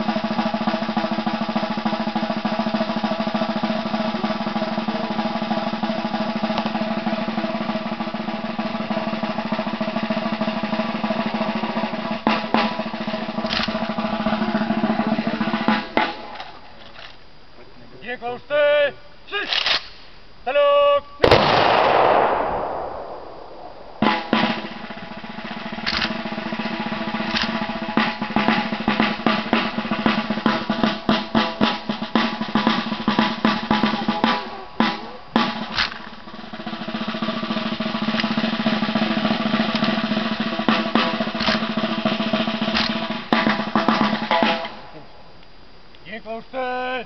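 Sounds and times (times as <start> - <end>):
snare drum rolls: 0.0 - 16.7, 21.2 - 45.1
rifle volley: 0.0 - 17.1, 21.2 - 45.0
military march music: 0.0 - 17.5, 20.5 - 47.0.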